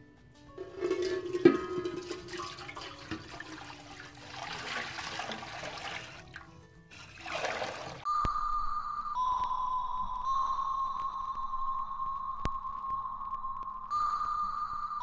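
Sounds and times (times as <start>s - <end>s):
water pouring into metal pot: 0.6s - 8.1s
steady high tone: 8.0s - 15.0s.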